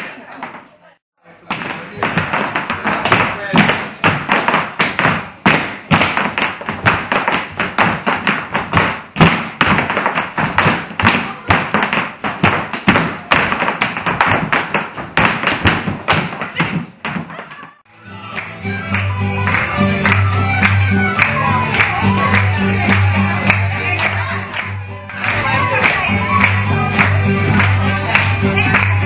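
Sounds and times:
feet stamping on wooden floor: 1.6s - 17.7s.

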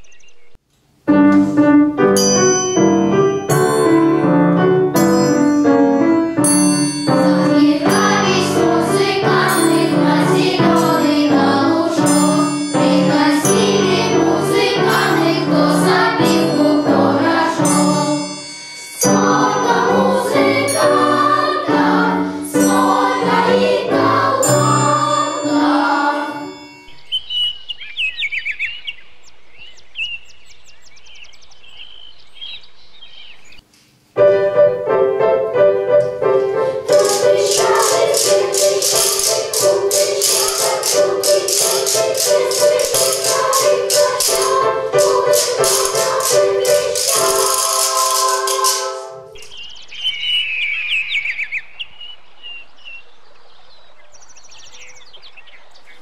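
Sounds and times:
high wavering bird-like chirps: 0.0s - 0.6s, 24.5s - 33.6s, 37.2s - 53.1s
lively piano piece: 1.1s - 26.9s, 34.1s - 49.5s
ensemble playing loudly: 36.7s - 49.4s.

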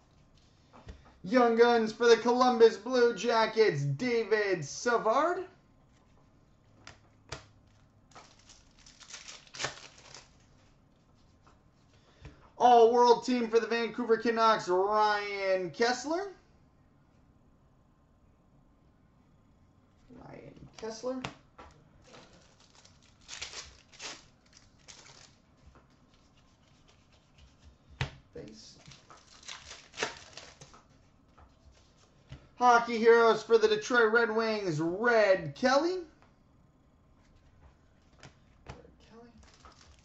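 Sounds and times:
cards rustling: 5.9s - 11.5s, 22.0s - 32.4s, 39.4s - 40.0s.

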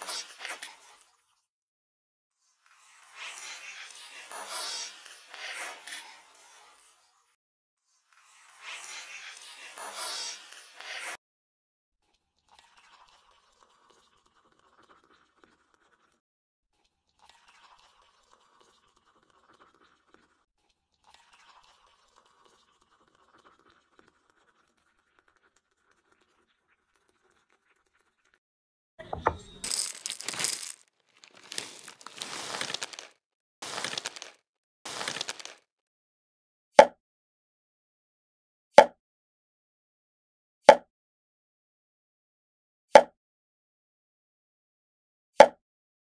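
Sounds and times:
cereal poured into glass bowl: 29.2s - 35.7s
foil bag crinkling: 29.6s - 35.6s.

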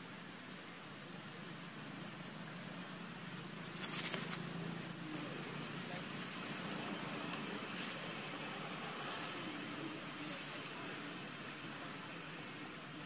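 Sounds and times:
background hiss: 0.0s - 13.0s
brief crackle: 3.7s - 4.4s.

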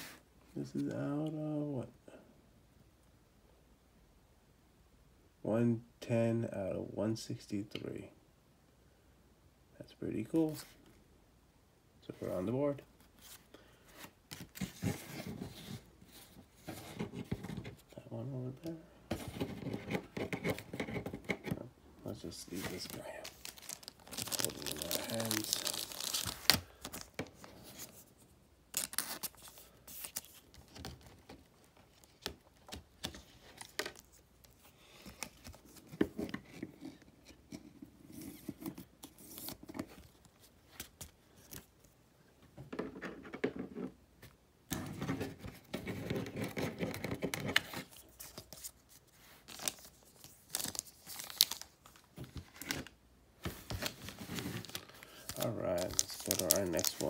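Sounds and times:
plastic sleeves crinkling: 22.2s - 36.6s, 46.0s - 57.0s.

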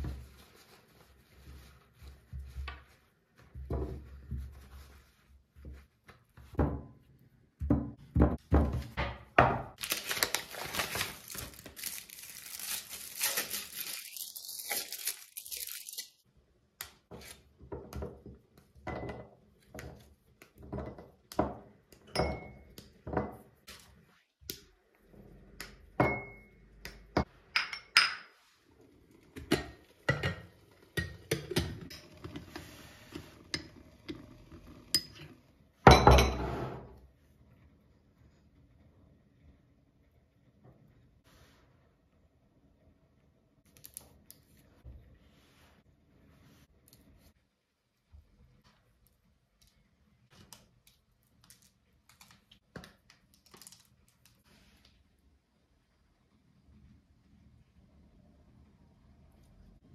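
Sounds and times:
foil wrapper crinkling: 9.8s - 16.2s
loud paper rustle: 9.8s - 16.2s.

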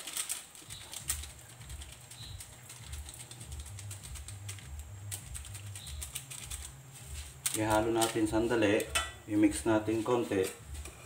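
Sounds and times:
seasoning granules sprinkling: 0.0s - 10.6s
low pulsing hum: 0.7s - 7.5s.

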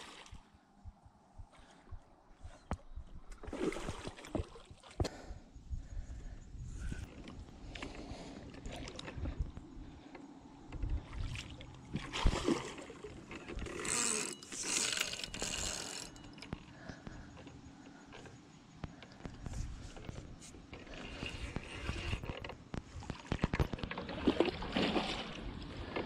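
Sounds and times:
spinning reel being wound: 13.6s - 16.3s.

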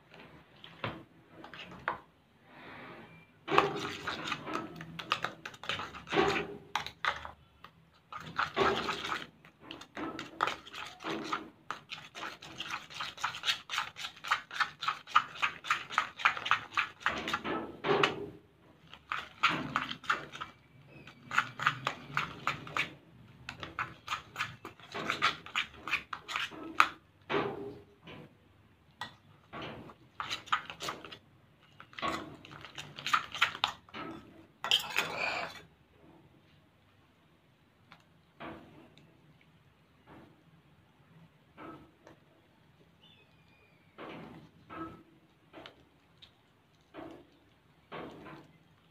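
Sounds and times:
metal spoon scraping a bowl: 3.1s - 7.4s, 8.1s - 17.6s, 18.9s - 27.0s, 29.7s - 35.7s.

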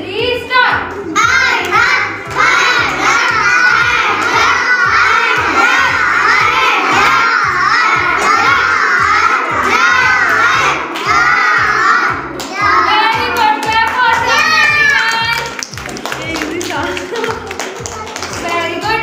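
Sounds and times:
steady low beat: 0.0s - 13.4s
children shouting and cheering: 1.0s - 15.7s.

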